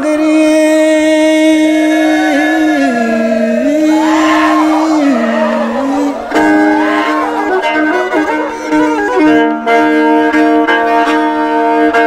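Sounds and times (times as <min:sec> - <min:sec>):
bowed violin melody: 0:01.1 - 0:12.0.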